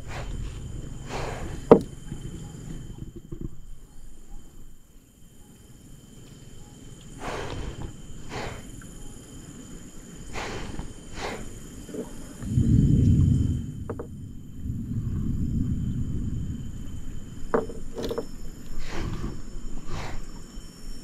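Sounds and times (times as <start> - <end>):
wind buffeting microphone: 0.0 - 4.4, 7.0 - 21.0
low outdoor rumble: 0.0 - 4.9, 5.6 - 20.6
high thin insect drone: 0.0 - 21.0.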